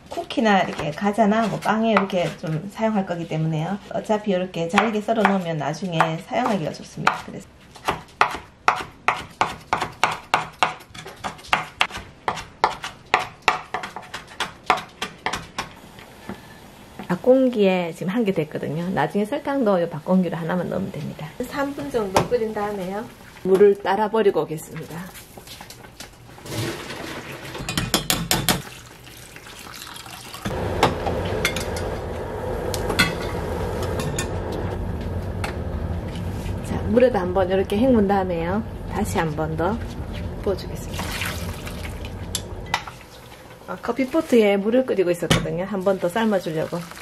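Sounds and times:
knife chopping on wooden board: 7.8s - 15.7s
water pouring into pot: 28.6s - 30.5s, 40.9s - 42.3s, 46.3s - 47.0s.

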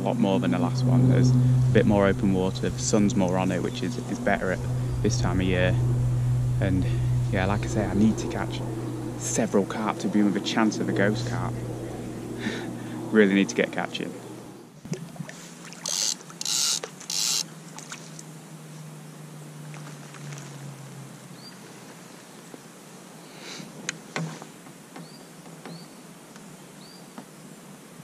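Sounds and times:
short hissing bursts: 12.3s - 13.1s
fishing reel whirring: 15.8s - 17.5s.

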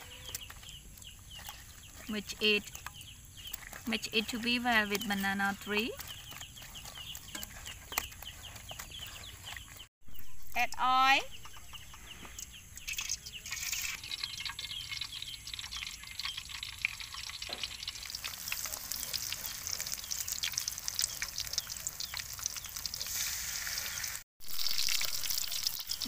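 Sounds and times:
food sizzling in hot oil: 12.9s - 26.0s.

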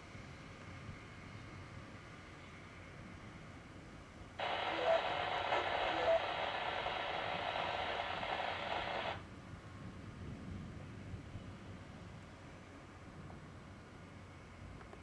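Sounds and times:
radio static: 4.4s - 9.2s.

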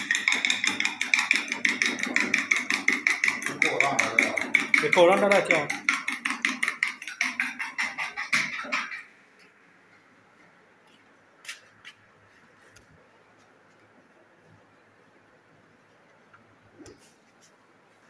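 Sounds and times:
fast rattling clatter: 0.0s - 9.0s.

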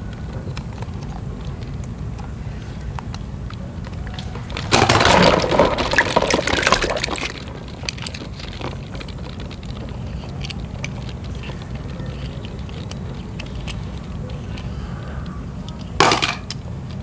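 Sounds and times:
toy cars clicking: 0.0s - 17.0s
plastic balls clattering in a tub: 3.9s - 14.7s, 15.7s - 17.0s.

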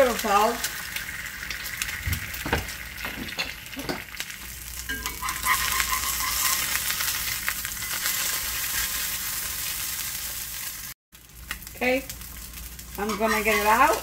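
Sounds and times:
egg sizzling in oil: 0.0s - 14.0s
spatula turning egg: 4.8s - 9.0s.

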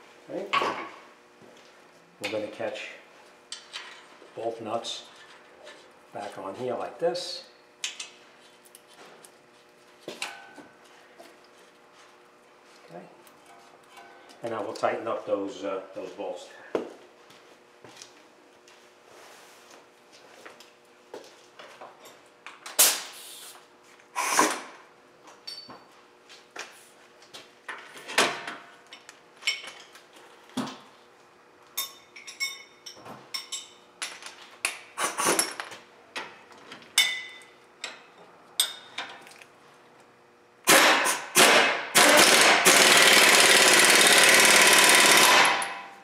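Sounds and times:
pneumatic tool running: 40.6s - 45.9s.

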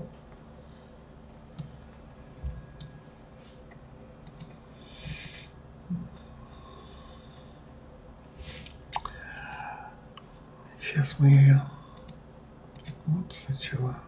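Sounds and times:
computer mouse and keyboard clicks: 1.6s - 1.9s, 3.7s - 5.4s, 12.0s - 13.0s.

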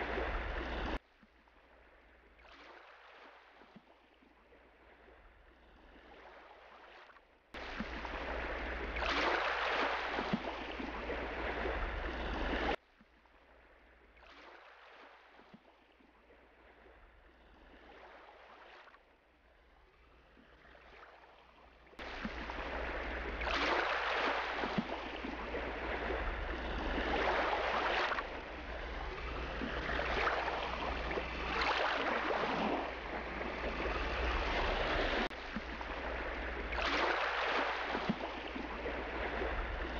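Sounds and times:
rushing water: 0.0s - 1.0s, 7.6s - 12.8s, 20.7s - 39.9s.

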